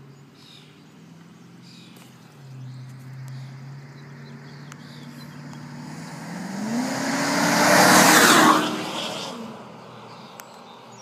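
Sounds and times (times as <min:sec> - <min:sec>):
truck exhaust revving: 0:05.4 - 0:09.6.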